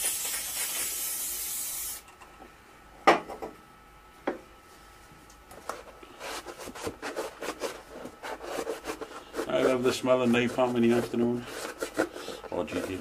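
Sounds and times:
aerosol spray can hissing: 0.0 - 2.0
cloth rag rubbing bodywork: 8.4 - 13.0.

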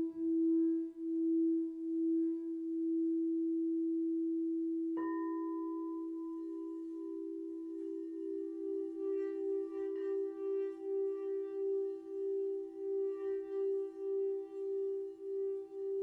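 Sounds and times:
singing bowl low tone: 0.0 - 16.0
singing bowl struck high tone: 5.0 - 16.0.

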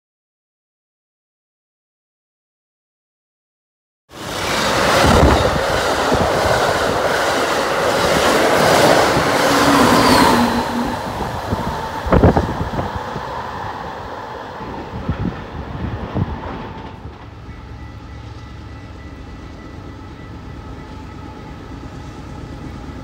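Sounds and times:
wheels clacking over rail joints: 4.1 - 13.3
passenger train passing: 4.1 - 23.0.

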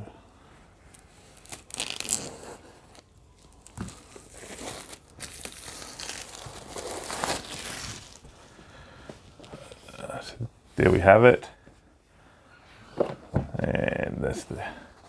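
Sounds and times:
plastic shrink wrap tearing: 0.9 - 8.3.

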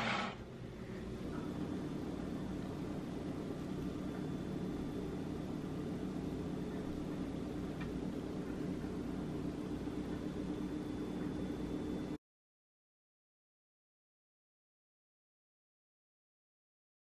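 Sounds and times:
faint high whine: 0.0 - 12.2
low machine hum: 0.0 - 12.2.

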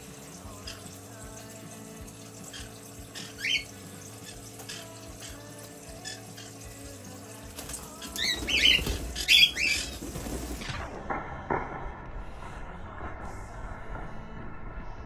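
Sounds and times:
thin stream of water running: 0.0 - 10.8
splashing: 0.6 - 10.6
wing flapping: 7.6 - 10.9.

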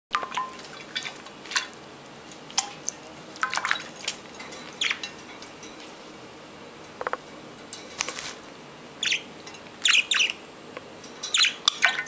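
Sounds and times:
water splashes and drips: 0.2 - 1.7, 2.5 - 4.2
birds chirping: 4.8 - 5.0, 9.0 - 10.4, 11.2 - 12.0.

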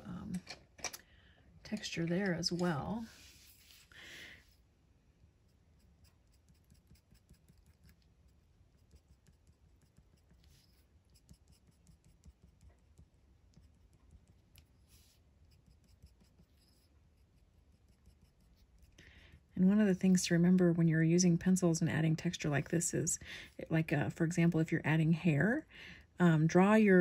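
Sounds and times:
pencil scratching on paper: 5.5 - 19.0.

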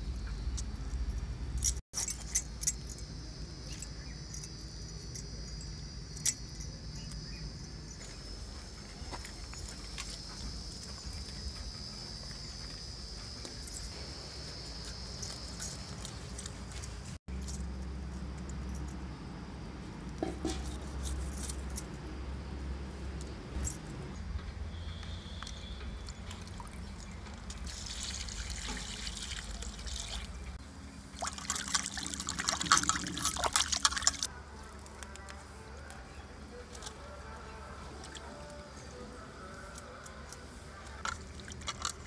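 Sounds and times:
mug scooping water from bucket: 27.6 - 30.4, 31.2 - 34.3, 41.1 - 42.0
water poured splashing: 27.6 - 30.4, 31.2 - 34.3, 41.1 - 42.0.

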